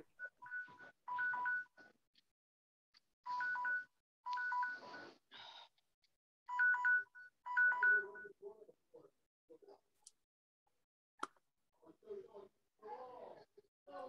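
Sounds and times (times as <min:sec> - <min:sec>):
electronic telephone beeping: 0:00.0 - 0:01.8, 0:03.3 - 0:05.1, 0:06.5 - 0:08.3.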